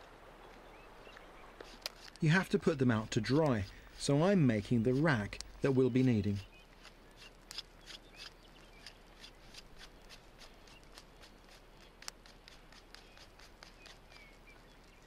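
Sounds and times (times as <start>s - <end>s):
wooden sticks clicking and rustling: 1.6s - 8.4s, 9.2s - 15.0s.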